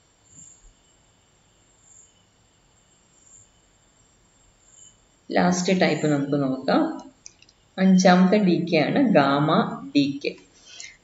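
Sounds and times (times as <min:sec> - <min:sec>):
cricket chirping softly: 0:00.0 - 0:08.1.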